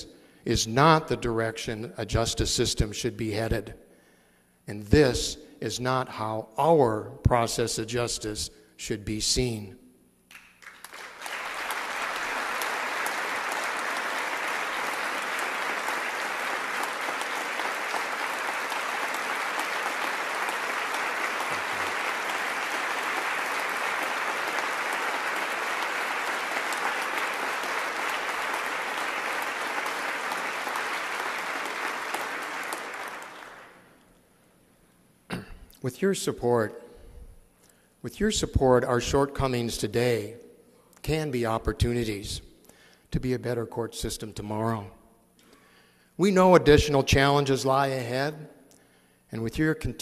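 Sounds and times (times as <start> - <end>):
large audience applauding: 10.3 - 33.9.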